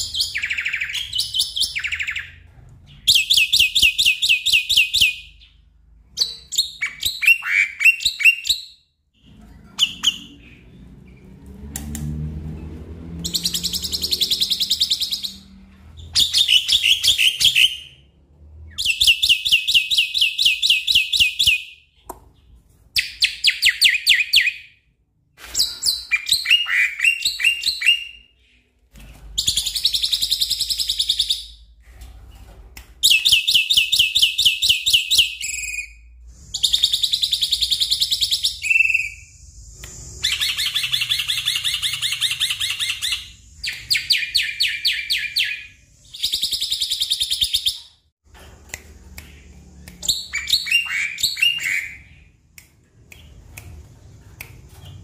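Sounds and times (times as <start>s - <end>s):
myna bird singing: 0.0s - 5.6s.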